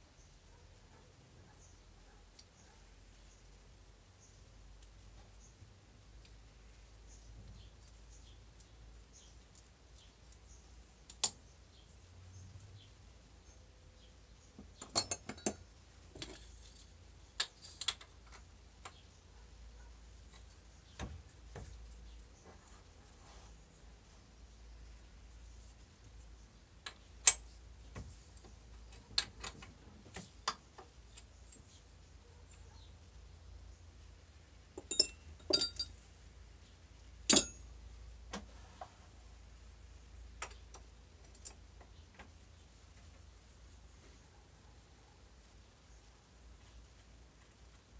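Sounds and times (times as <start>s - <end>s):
metallic clinks of lathe parts: 14.8s - 15.6s, 34.8s - 36.0s, 37.3s - 37.7s
metal tools clinking: 14.8s - 18.1s, 34.8s - 36.0s, 37.3s - 37.7s.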